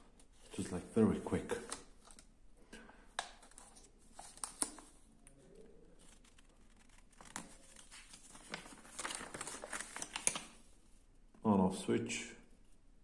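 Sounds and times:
paper booklet rustling: 0:00.1 - 0:02.3, 0:03.2 - 0:05.1, 0:06.0 - 0:10.7.

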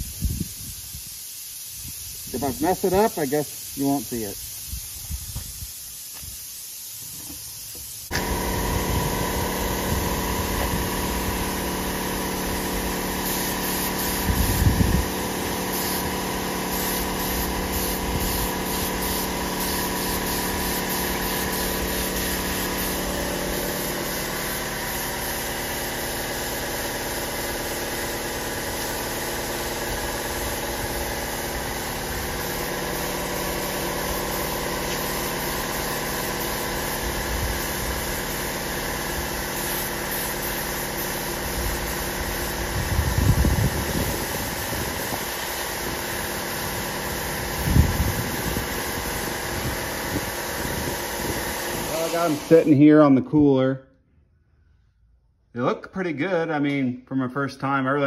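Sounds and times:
air compressor running: 0:07.0 - 0:52.8.

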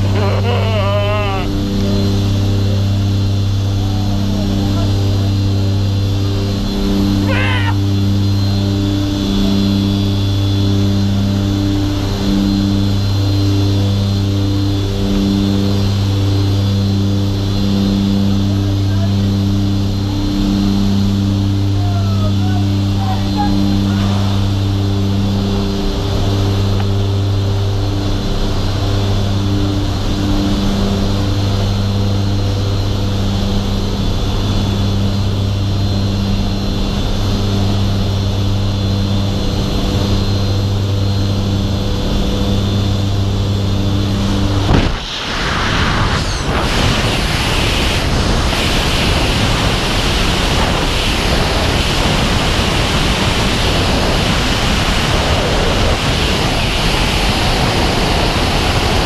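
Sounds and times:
plane engines droning: 0:00.0 - 0:59.0
rushing wind noise: 0:41.5 - 0:59.0.

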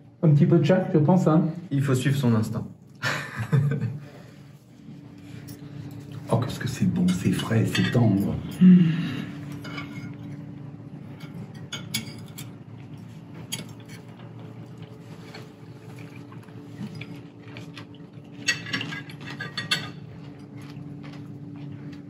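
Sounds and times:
steady low hum: 0:00.0 - 0:22.0
cutlery clinking on plates: 0:07.0 - 0:08.6, 0:09.5 - 0:10.4, 0:11.1 - 0:12.6, 0:18.4 - 0:20.6.

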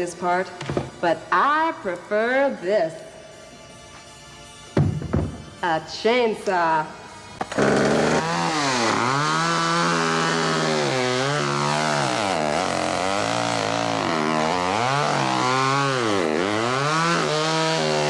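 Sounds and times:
chainsaw revving: 0:07.4 - 0:18.0.

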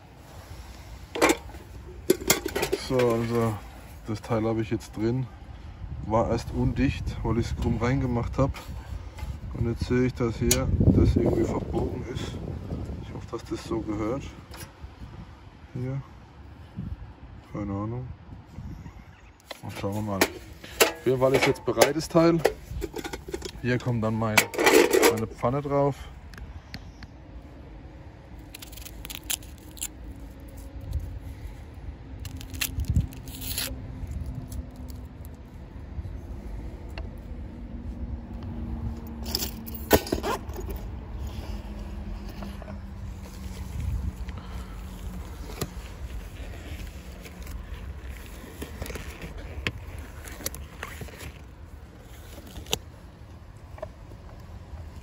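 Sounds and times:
low wind rumble on microphone: 0:00.0 - 0:24.6, 0:26.1 - 0:55.0
microphone handling clicks and rustles: 0:19.4 - 0:25.5, 0:38.4 - 0:55.0
onion skin crackling and tearing: 0:28.4 - 0:31.1, 0:32.2 - 0:35.4.

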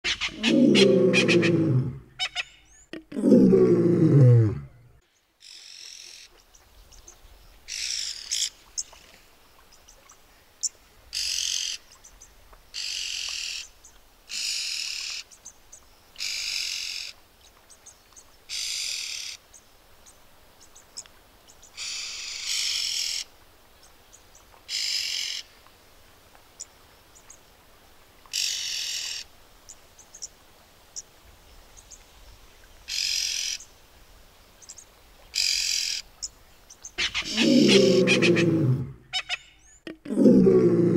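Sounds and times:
bird harsh rasping calls: 0:37.0 - 0:39.8.

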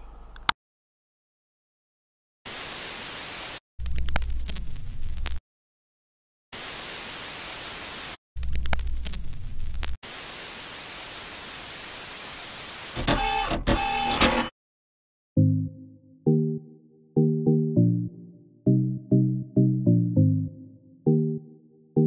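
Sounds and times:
television static hiss: 0:10.1 - 0:13.3
music: 0:15.4 - 0:22.0.

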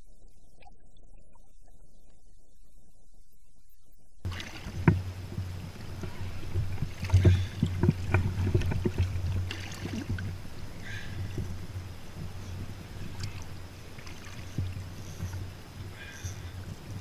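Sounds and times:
wind rumble on microphone: 0:00.0 - 0:17.0
water slapping against boat: 0:04.3 - 0:17.0.

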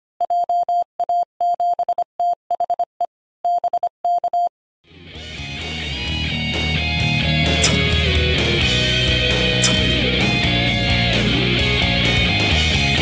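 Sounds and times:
music: 0:04.9 - 0:13.0.

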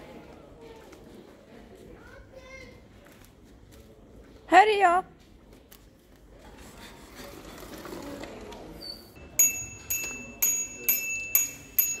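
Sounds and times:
bicycle bell dinging: 0:09.2 - 0:12.0.

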